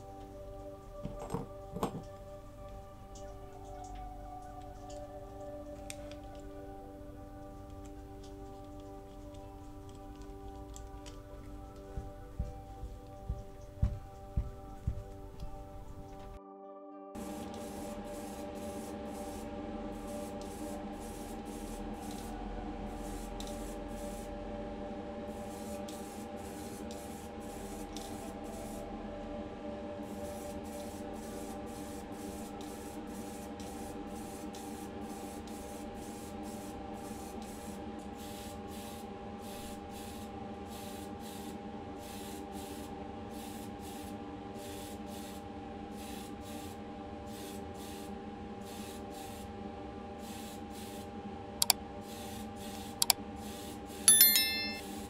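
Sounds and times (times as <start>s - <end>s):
spray paint can hissing: 17.3s - 19.4s, 20.2s - 22.3s, 23.1s - 24.3s, 25.6s - 28.8s, 36.5s - 41.4s.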